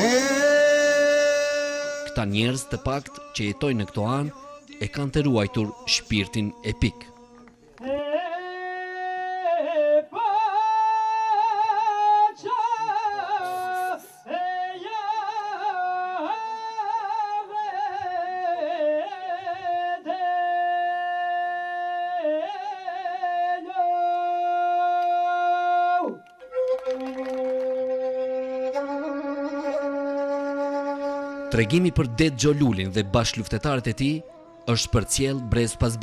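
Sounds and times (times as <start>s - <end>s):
man singing solo: 0.0s - 7.2s.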